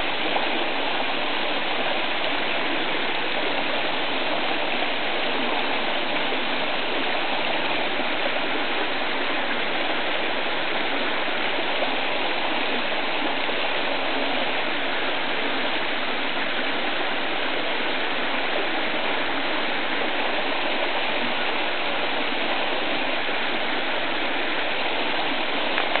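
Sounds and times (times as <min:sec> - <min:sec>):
river running over rocks: 0:00.0 - 0:26.0.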